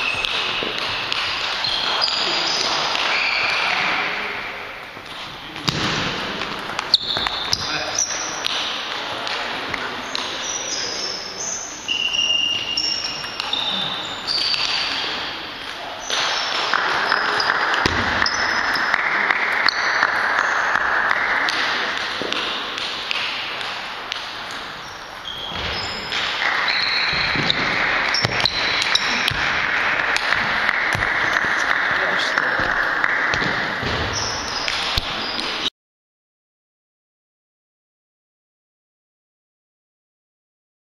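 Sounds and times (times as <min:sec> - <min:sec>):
busy sports hall background: 0:00.0 - 0:35.7
shoe squeaks: 0:01.6 - 0:04.0, 0:06.9 - 0:08.4, 0:10.0 - 0:18.7, 0:24.8 - 0:29.4.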